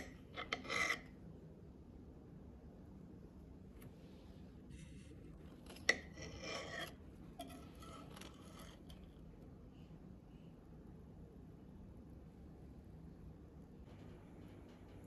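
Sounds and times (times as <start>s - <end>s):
metal scraping on glass plate: 0.0s - 1.1s, 5.7s - 9.1s.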